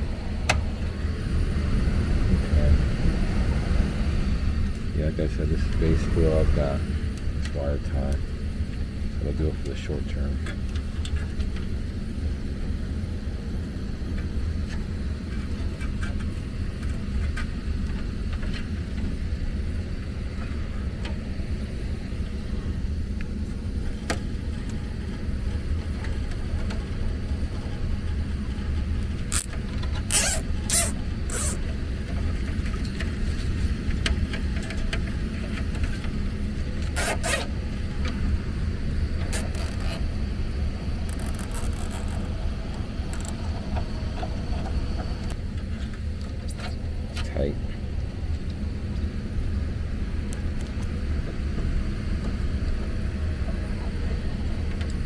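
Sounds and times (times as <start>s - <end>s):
air handler humming: 0.0s - 55.0s
cable tie zipping: 29.3s - 31.6s, 37.0s - 37.5s.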